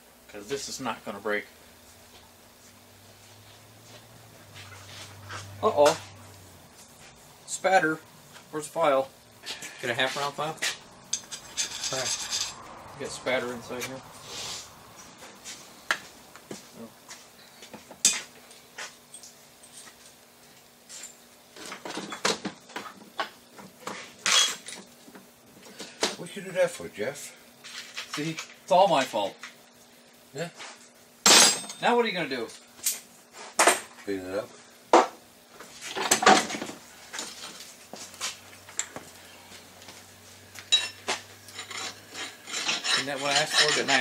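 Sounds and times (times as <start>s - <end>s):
steel tools scraping metal: 11.1s - 12.6s, 24.2s - 24.7s, 40.7s - 44.0s
hand file scraping on steel: 41.6s - 44.0s.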